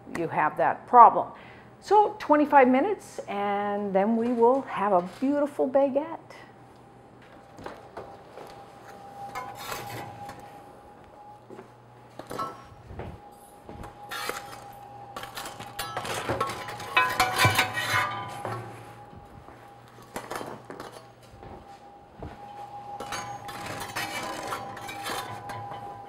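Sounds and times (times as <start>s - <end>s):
metal oven racks clinking: 14.0s - 19.0s, 23.0s - 26.0s.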